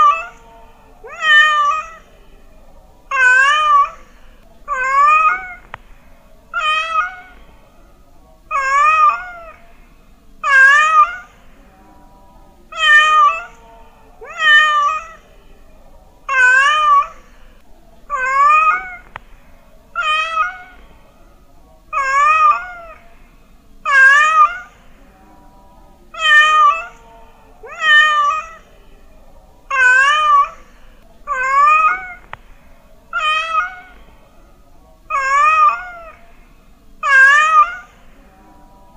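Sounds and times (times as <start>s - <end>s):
cat meowing: 0.0s - 0.4s, 1.0s - 2.1s, 3.1s - 4.1s, 4.7s - 5.8s, 6.5s - 7.4s, 8.5s - 9.6s, 10.4s - 11.4s, 12.7s - 13.6s, 14.2s - 15.2s, 16.3s - 17.2s, 18.1s - 19.2s, 20.0s - 20.8s, 21.9s - 23.0s, 23.9s - 24.8s, 26.2s - 27.0s, 27.6s - 28.7s, 29.7s - 30.7s, 31.3s - 32.4s, 33.1s - 34.0s, 35.1s - 36.2s, 37.0s - 38.0s.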